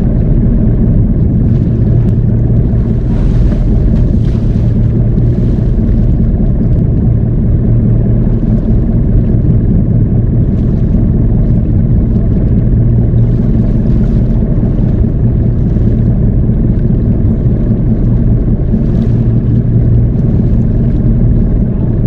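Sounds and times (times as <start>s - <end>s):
boat engine humming: 0.0s - 22.0s
sea around hull: 0.0s - 22.0s
wind on microphone: 0.0s - 22.0s.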